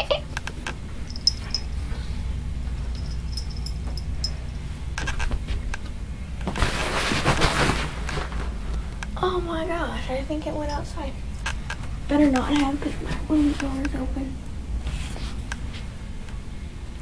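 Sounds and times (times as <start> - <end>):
steady low hum: 0.0 - 17.0
fabric rustling against microphone: 6.4 - 8.6.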